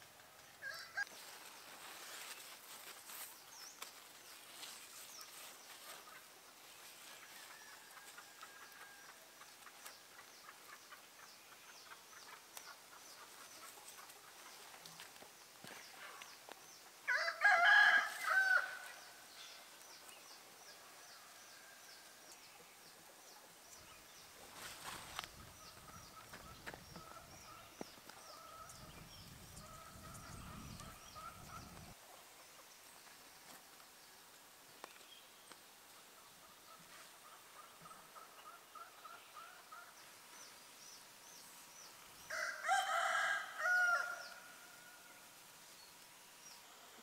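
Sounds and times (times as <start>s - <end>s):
rooster crowing: 17.1s - 19.1s, 42.3s - 45.0s.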